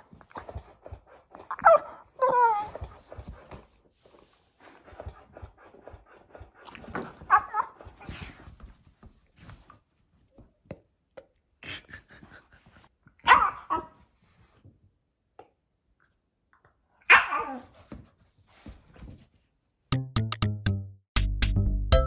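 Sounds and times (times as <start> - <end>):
dog barking: 13.2 - 13.9, 17.1 - 17.6.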